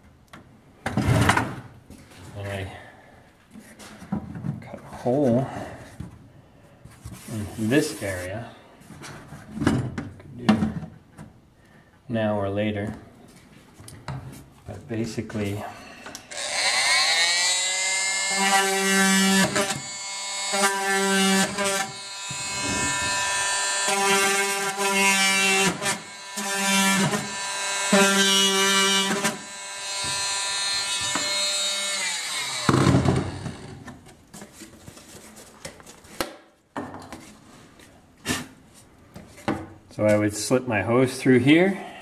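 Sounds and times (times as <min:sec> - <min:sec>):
power tool cutting plastic: 0:16.2 - 0:33.9.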